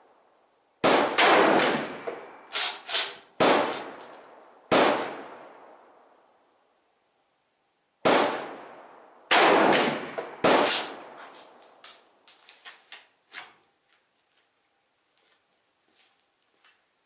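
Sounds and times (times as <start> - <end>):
rifle shots echoing: 0.8 - 4.1, 4.7 - 5.8, 8.0 - 11.2.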